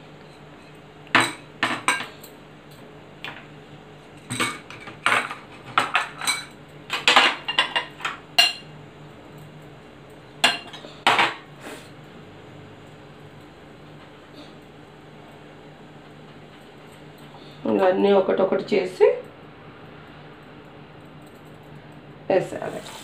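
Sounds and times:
crockery and utensils clinking: 4.2s - 8.7s, 10.4s - 11.4s.

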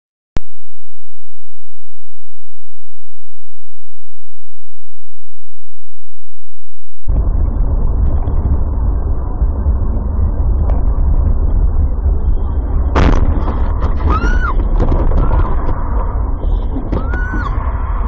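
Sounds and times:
road and engine rumble inside car: 7.1s - 18.0s
sharp loud bang: 13.0s - 15.8s
high-pitched rising and falling sounds: 16.9s - 17.6s.

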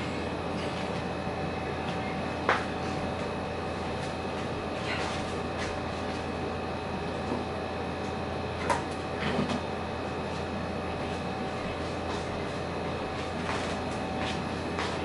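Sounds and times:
steady mechanical hum: 0.0s - 15.0s.

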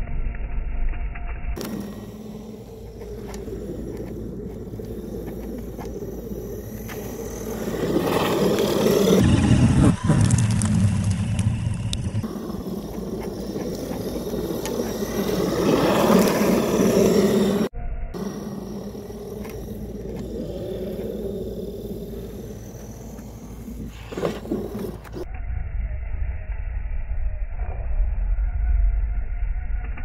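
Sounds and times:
tyres churning through snow: 1.6s - 25.2s
rc truck motor running: 1.6s - 25.3s.

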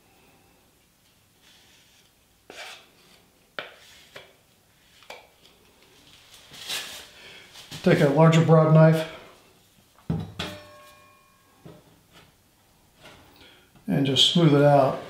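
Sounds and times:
putty knife scraping board: 2.5s - 4.3s.

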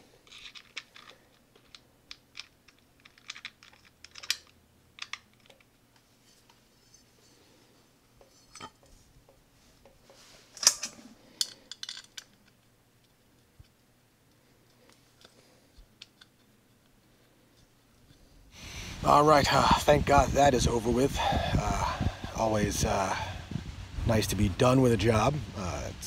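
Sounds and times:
small metallic clicks and clinks: 0.2s - 7.1s, 10.6s - 13.2s.

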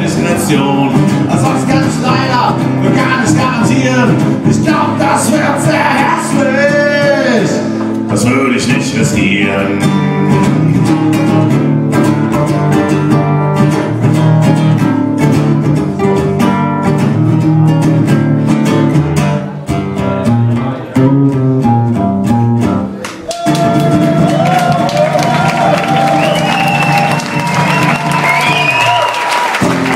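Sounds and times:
acoustic guitar strumming: 0.0s - 29.0s, 29.6s - 29.9s
audience applauding: 23.0s - 29.9s.

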